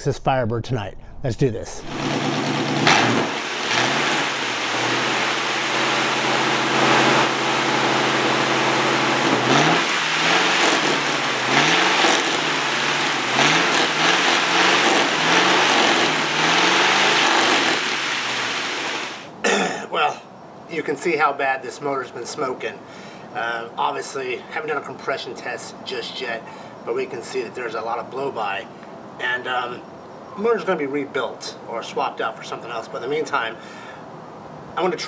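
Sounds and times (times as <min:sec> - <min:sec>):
engine idling and revving: 0:01.8 - 0:19.4.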